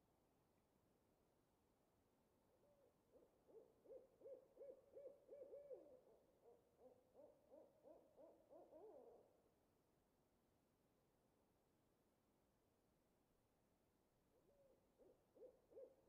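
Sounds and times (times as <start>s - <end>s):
owl hooting rapidly: 3.1s - 9.2s, 14.5s - 16.0s.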